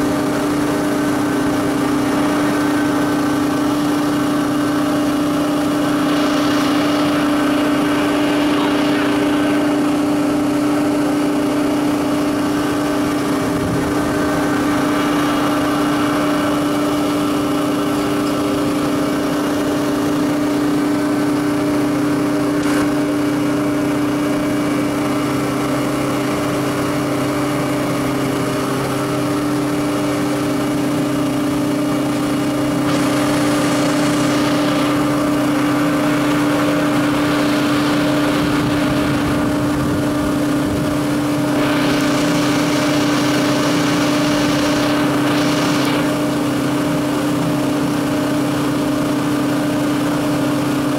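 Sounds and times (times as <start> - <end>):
machine hum with tones: 0.0 - 50.9.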